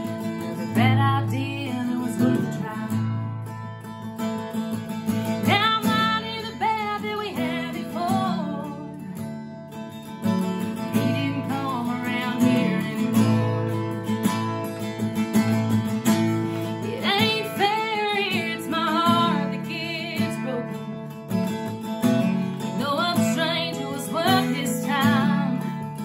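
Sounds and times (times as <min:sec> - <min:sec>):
woman singing: 0:00.0 - 0:03.4, 0:05.3 - 0:09.3, 0:10.3 - 0:13.8, 0:16.6 - 0:21.6, 0:22.5 - 0:26.0
acoustic guitar strumming: 0:00.0 - 0:26.0.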